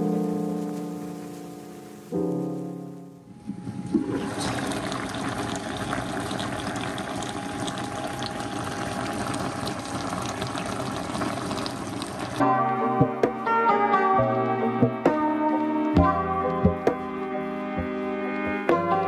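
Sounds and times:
music: 0.0 - 3.6, 12.4 - 19.0.

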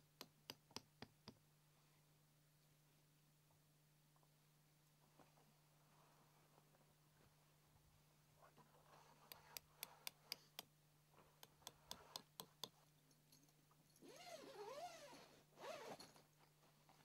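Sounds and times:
tent door zipper: 14.0 - 16.2.

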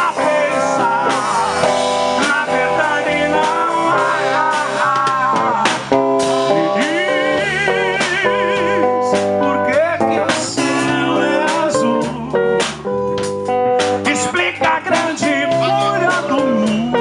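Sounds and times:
electric guitar: 0.0 - 17.0
person singing: 0.0 - 17.0.

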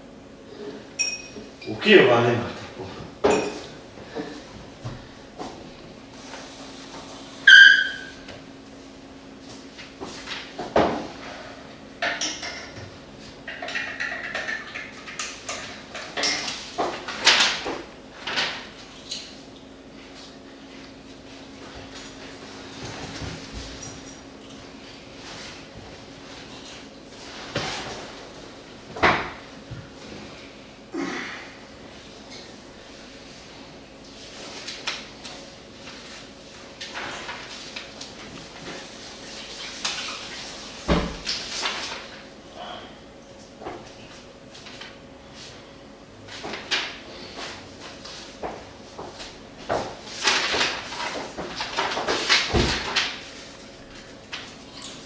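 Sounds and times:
steady low hum: 0.0 - 13.5
dishes and cutlery clinking: 1.0 - 1.7, 3.2 - 3.7, 13.5 - 16.6.

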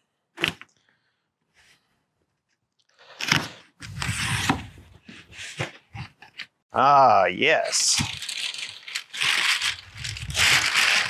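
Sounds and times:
packing paper rustling and crunching: 7.5 - 11.0.

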